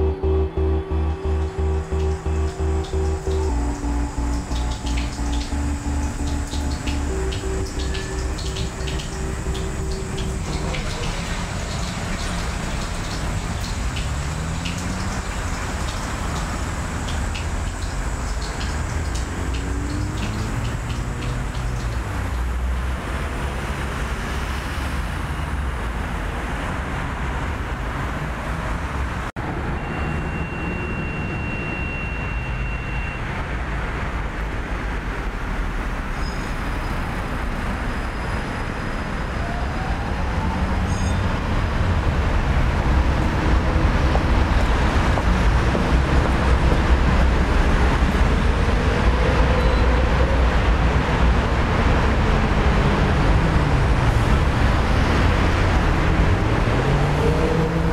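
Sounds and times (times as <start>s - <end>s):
brief high steady tone: 0.0s - 11.8s
city traffic rumble and hiss: 0.0s - 57.9s.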